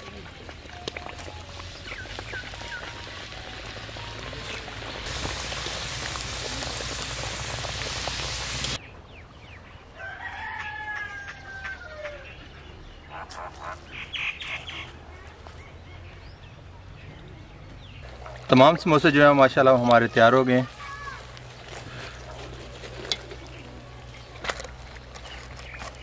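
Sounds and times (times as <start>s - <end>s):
deep-frying sizzle in hot oil: 0.0s - 8.8s
rooster crowing: 10.0s - 12.3s.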